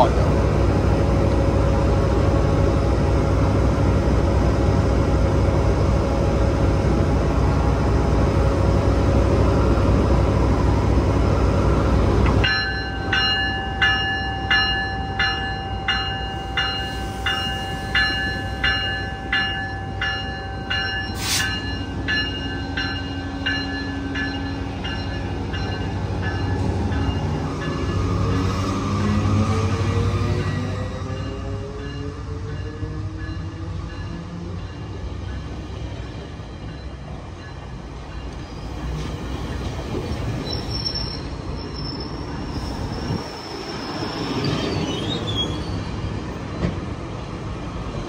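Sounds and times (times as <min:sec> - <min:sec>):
diesel locomotive running: 0:00.0 - 0:48.0
train bell ringing: 0:12.4 - 0:29.2, 0:30.3 - 0:39.7
short sharp hiss: 0:21.2 - 0:21.6.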